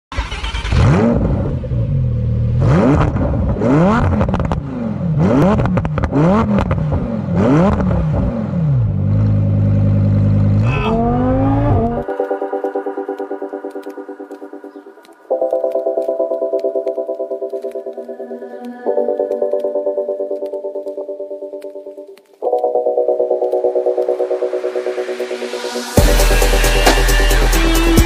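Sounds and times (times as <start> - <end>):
sports car engine revving: 0.2 - 12.0.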